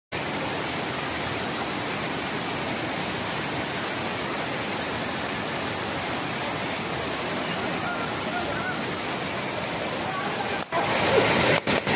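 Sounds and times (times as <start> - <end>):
water rushing over weir: 0.1 - 11.9.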